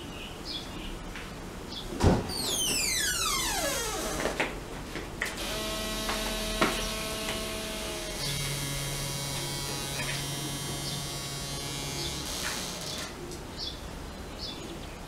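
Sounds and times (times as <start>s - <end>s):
electric appliance motor hum: 5.4s - 13.2s.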